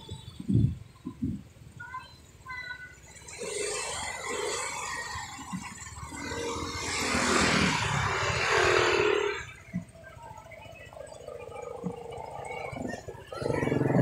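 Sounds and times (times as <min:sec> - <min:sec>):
vehicle passing by: 0:03.2 - 0:09.9.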